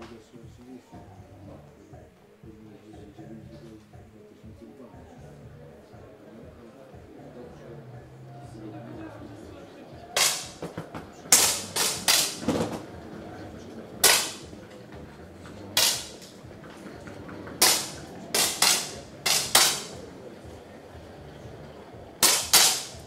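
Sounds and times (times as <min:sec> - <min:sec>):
air pistol shots: 0:10.2 - 0:10.6, 0:11.3 - 0:12.8, 0:14.0 - 0:14.5, 0:15.8 - 0:16.3, 0:17.6 - 0:20.0, 0:22.2 - 0:23.0.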